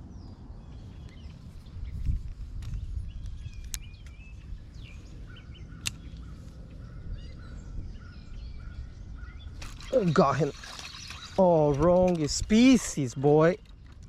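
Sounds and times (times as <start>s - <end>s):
birds chirping: 0.0s - 14.0s
sharp clicks: 5.8s - 6.2s.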